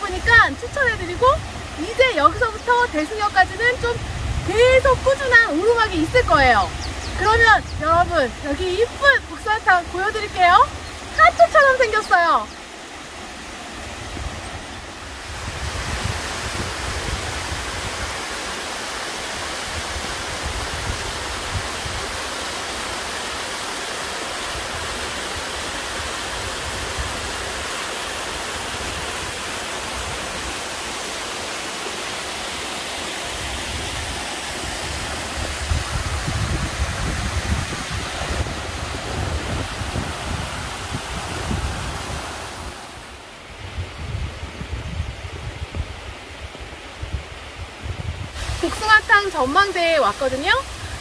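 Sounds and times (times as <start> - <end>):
wind buffeting microphone: 0.0 - 12.5, 13.8 - 18.4, 33.3 - 51.0
waterfall rushing: 0.0 - 51.0.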